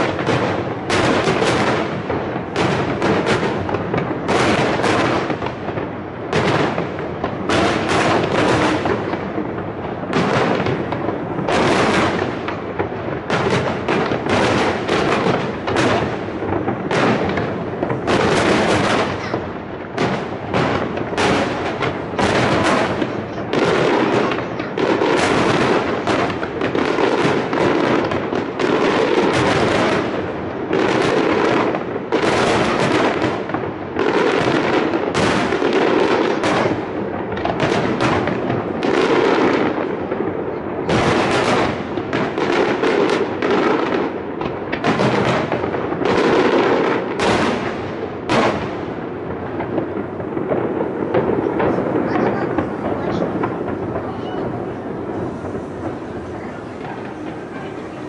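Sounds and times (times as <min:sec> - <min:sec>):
fireworks shells bursting: 0:49.4 - 0:58.0.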